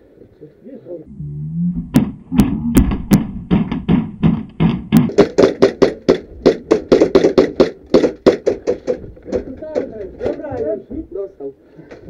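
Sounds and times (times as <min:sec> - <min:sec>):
sharp cracks: 0:01.9 - 0:10.5
rapid knocks and taps: 0:01.9 - 0:11.1.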